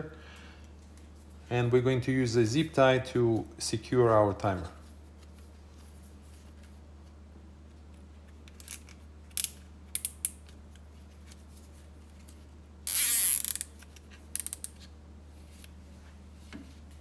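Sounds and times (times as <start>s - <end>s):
zip tie ratcheting: 12.8s - 14.8s
small clicks of zip tie handling: 12.9s - 14.9s.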